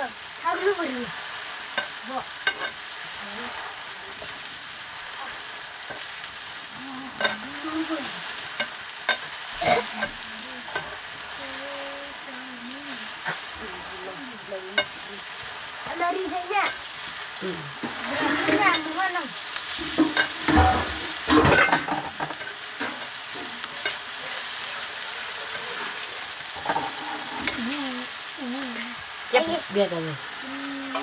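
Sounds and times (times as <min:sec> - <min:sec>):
greens sizzling in a wok: 0:00.0 - 0:31.0.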